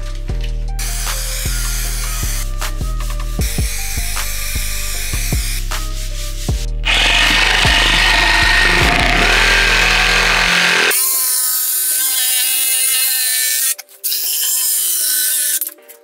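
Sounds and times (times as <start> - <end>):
electric jigsaw cutting wood: 6.8 - 13.2.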